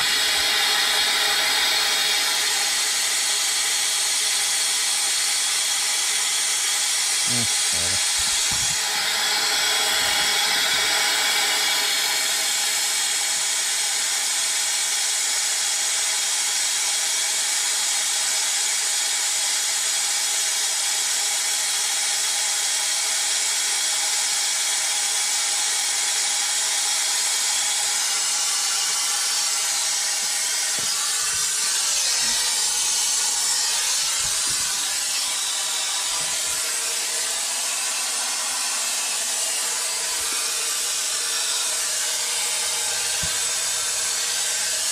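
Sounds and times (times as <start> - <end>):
compressed air tool hissing: 0.0 - 13.4, 27.6 - 44.9.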